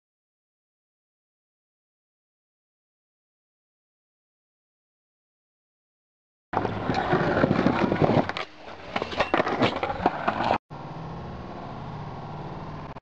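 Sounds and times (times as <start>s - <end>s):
skateboard wheels rolling on asphalt: 6.6s - 10.6s.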